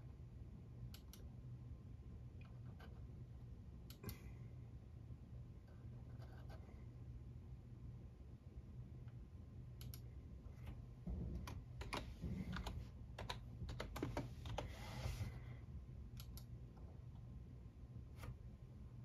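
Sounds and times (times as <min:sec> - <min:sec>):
keyboard and mouse clicking: 0:09.8 - 0:10.1, 0:11.5 - 0:14.7, 0:16.1 - 0:16.5.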